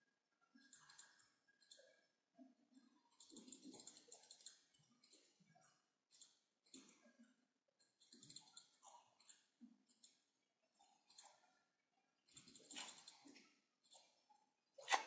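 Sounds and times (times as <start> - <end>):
faint computer mouse clicks: 0.6 - 2.0.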